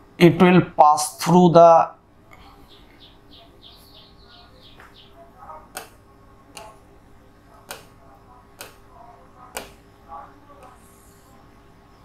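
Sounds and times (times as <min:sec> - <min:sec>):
faint high squeaky chirps: 0:02.4 - 0:12.0
sharp clicks: 0:05.7 - 0:06.8, 0:07.6 - 0:08.0, 0:08.6 - 0:08.9, 0:09.5 - 0:09.9.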